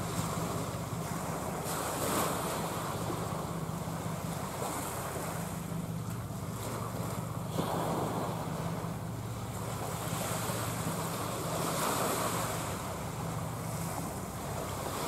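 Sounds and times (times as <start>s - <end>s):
tugboat engines humming: 0.0s - 15.0s.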